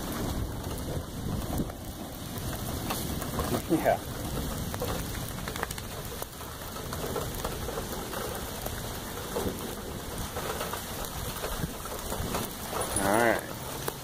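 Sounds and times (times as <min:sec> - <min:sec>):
raindrops ticking close by: 0:00.0 - 0:14.0
steady rain hiss: 0:00.0 - 0:14.0.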